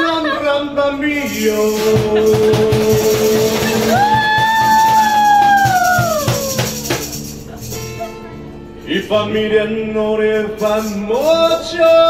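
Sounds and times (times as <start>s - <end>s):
strummed acoustic guitars: 1.1s - 12.0s
cajon beat: 1.2s - 9.2s.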